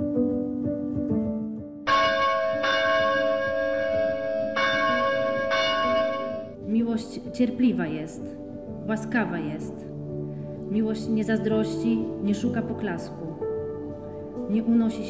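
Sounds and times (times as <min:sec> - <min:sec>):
soft instrumental music: 0:00.0 - 0:15.0
church bell ringing: 0:01.9 - 0:06.6.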